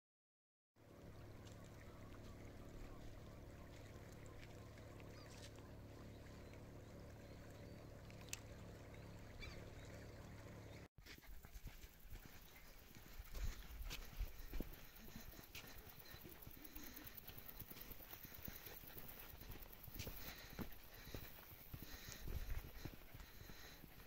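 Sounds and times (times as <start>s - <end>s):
low droning hum: 0.8s - 10.9s
faint chirps: 1.1s - 24.0s
soft clicks: 8.1s - 8.5s.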